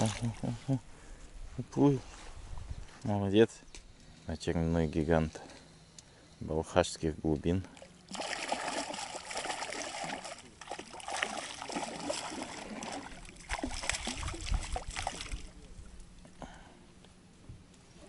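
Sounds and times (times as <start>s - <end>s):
water splashing at a boat: 0.0s - 0.6s, 7.7s - 16.2s.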